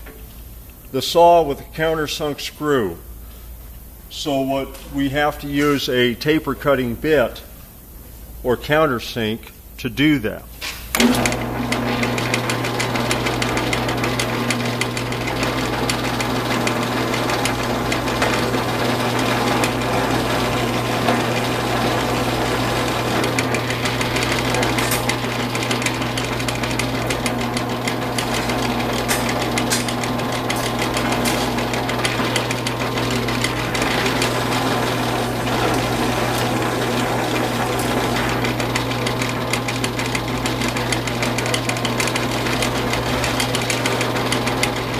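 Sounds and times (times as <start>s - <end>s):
machine motor hum: 10.9s - 44.9s.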